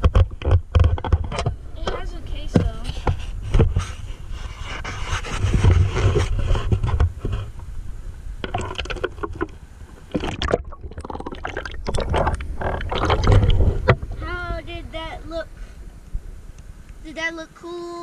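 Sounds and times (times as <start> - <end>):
handling rumble and wind: 0.0 - 18.0
river water splashing: 8.4 - 17.1.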